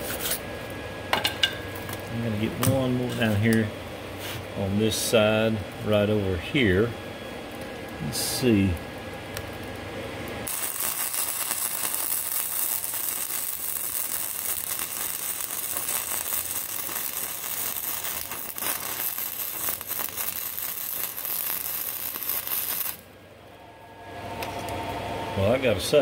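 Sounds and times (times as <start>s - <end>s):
welding arc crackling: 7.4s - 23.2s.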